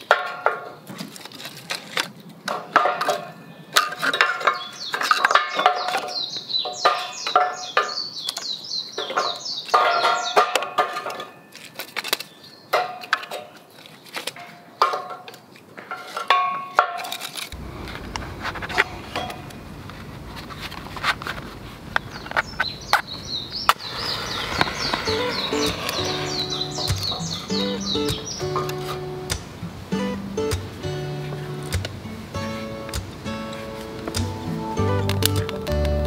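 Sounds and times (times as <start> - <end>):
firewood clattering while stacked: 0.0 - 8.4, 9.0 - 23.1.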